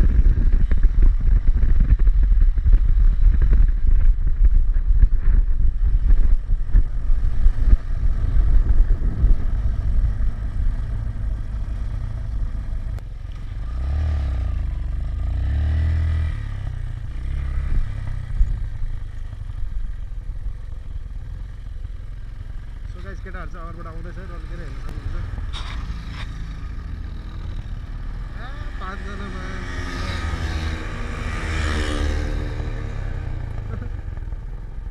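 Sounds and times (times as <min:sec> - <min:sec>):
wind buffeting: 0:00.0 - 0:12.7
motorcycle engine running: 0:00.0 - 0:34.9.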